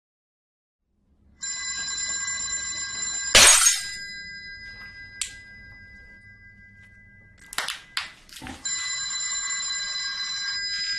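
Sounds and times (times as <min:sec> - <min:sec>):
high ringing tone: 0:01.4 - 0:10.9
glass bowl shattering: 0:03.3 - 0:04.1
glass clink: 0:03.4 - 0:08.1.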